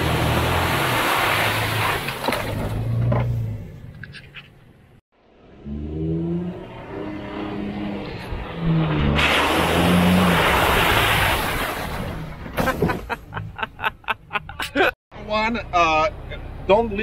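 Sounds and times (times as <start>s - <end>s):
engine revving hard: 5.4s - 11.4s.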